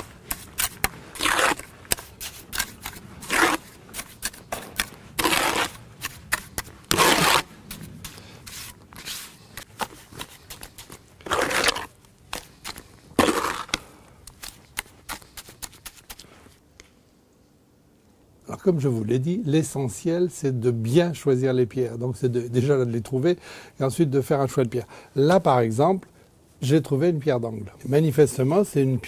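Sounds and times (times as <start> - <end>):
trowel scraping mortar: 0.0 - 13.8.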